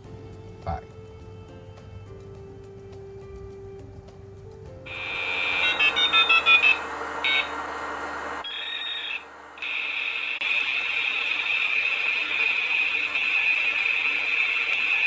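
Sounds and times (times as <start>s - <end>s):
high-pitched buzzing hiss: 4.9s - 15.0s.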